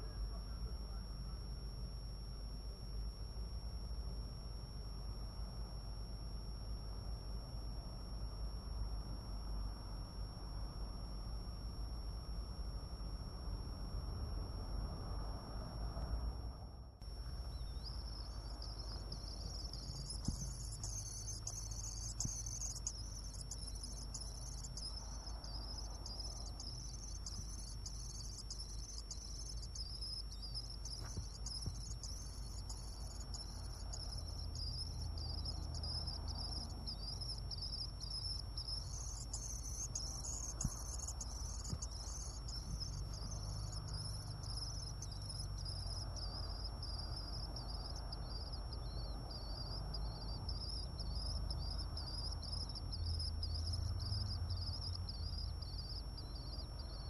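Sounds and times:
faint steady high whine: 0.0s - 57.0s
swifts chittering: 17.0s - 57.0s.

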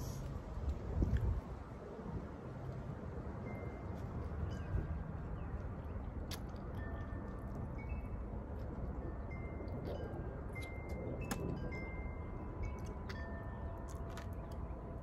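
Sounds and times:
wind chimes ringing: 6.7s - 15.0s.

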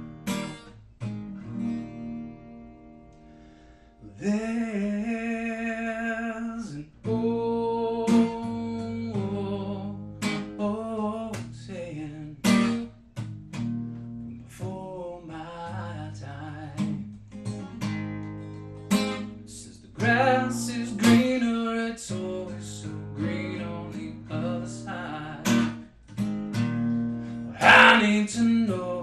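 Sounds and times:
acoustic guitar strumming: 0.0s - 29.0s
man singing: 4.0s - 12.9s, 14.4s - 17.1s, 19.4s - 25.8s, 27.4s - 29.0s.

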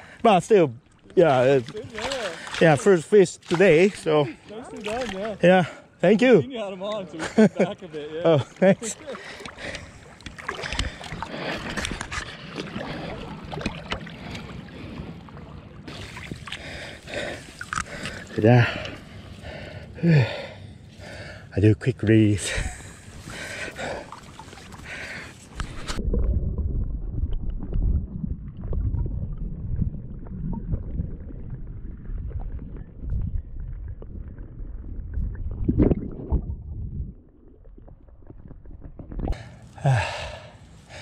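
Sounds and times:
river water splashing and gurgling: 0.6s - 5.7s, 7.9s - 21.2s, 22.6s - 26.1s
fish splashing in a net: 1.6s - 2.6s
muffled underwater river rumble: 23.1s - 39.8s.

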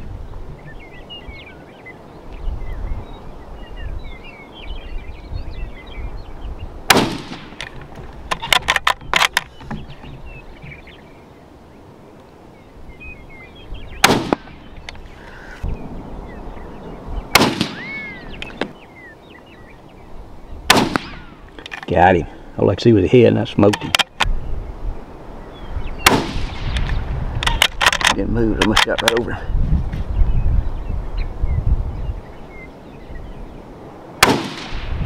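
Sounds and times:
rifle shots: 6.9s - 7.7s, 14.0s - 14.7s, 17.3s - 18.1s, 20.7s - 21.4s, 26.0s - 26.9s, 34.2s - 35.0s.

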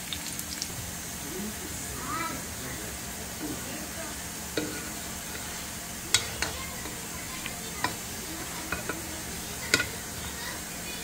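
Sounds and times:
food sizzling in oil: 0.0s - 11.0s
spoon tapping against pot: 6.1s - 7.0s, 7.8s - 8.0s, 8.7s - 9.1s, 9.7s - 10.0s.

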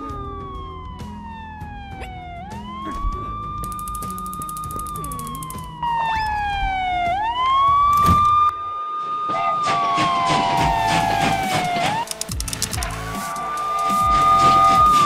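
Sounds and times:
soft background music: 0.0s - 8.5s
ambulance siren wailing: 0.0s - 12.1s, 12.8s - 15.0s.

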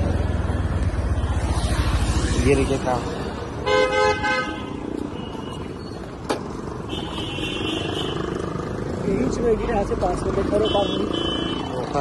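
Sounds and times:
street traffic rumble: 0.0s - 12.0s
vehicle horn: 3.6s - 5.3s.

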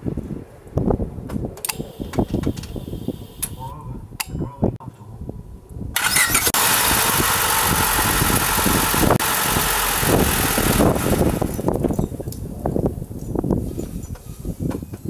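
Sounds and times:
car engine cranking and running: 6.0s - 12.1s.

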